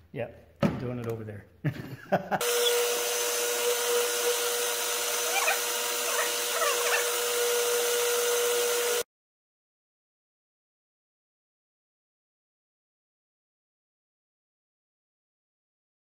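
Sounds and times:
drill press boring into plywood: 0:02.4 - 0:09.0.

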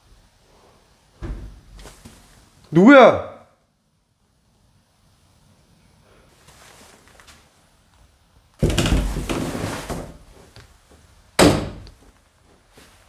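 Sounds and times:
door banging: 0:08.6 - 0:09.6, 0:11.4 - 0:11.9.

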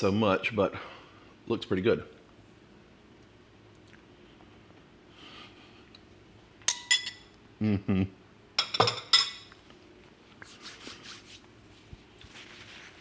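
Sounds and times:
metal spoon clinking ceramic bowl: 0:06.7 - 0:07.3, 0:08.6 - 0:09.5
man humming mm: 0:07.6 - 0:08.2.

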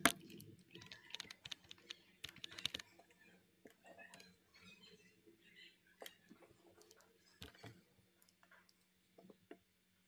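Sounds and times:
computer keyboard keys clicking: 0:00.0 - 0:02.9.

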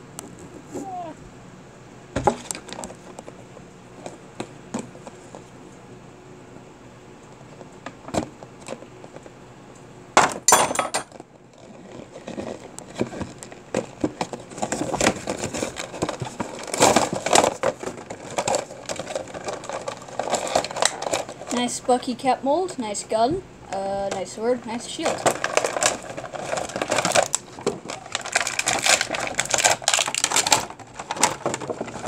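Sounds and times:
plastic packaging crackling: 0:11.1 - 0:22.2, 0:23.7 - 0:32.0
loud burst of packaging noise: 0:25.2 - 0:32.0.

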